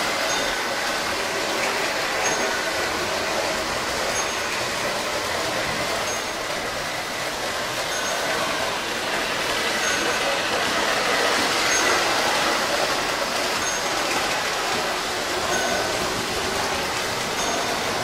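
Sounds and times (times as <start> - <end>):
model train rolling on track: 0.0 - 18.0.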